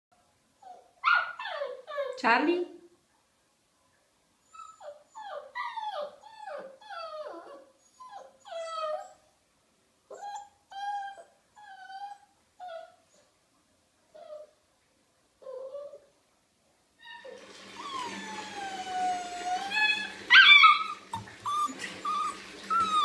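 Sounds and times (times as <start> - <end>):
puppy whining: 0.6 - 2.2, 4.4 - 9.3, 10.1 - 13.3, 14.1 - 14.6, 15.4 - 16.1, 17.0 - 23.0.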